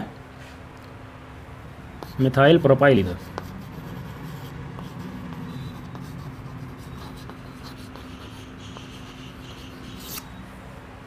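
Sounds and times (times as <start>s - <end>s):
low room hum: 0.0s - 11.0s
chalk tapping and scratching: 2.0s - 10.3s.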